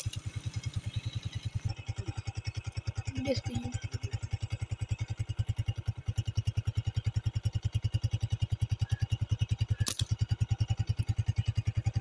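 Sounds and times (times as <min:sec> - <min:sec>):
motorcycle engine running: 0:00.0 - 0:12.0
sharp click: 0:09.8 - 0:10.2.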